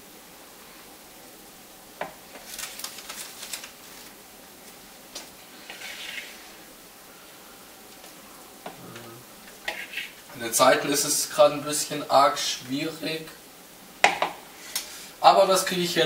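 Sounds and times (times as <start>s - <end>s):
spoon scraping plastic bowl: 5.6s - 6.5s, 9.6s - 10.2s.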